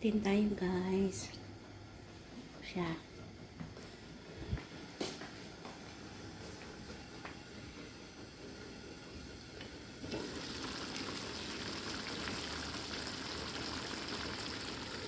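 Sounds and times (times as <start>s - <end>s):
pot bubbling and hissing: 6.8s - 15.0s.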